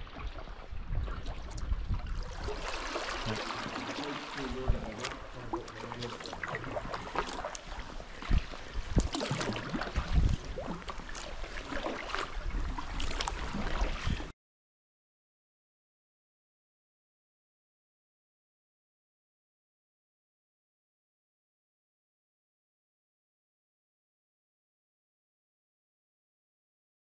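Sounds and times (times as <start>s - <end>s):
paddle blades splashing: 0.0s - 14.3s
water lapping against hull: 0.0s - 14.3s.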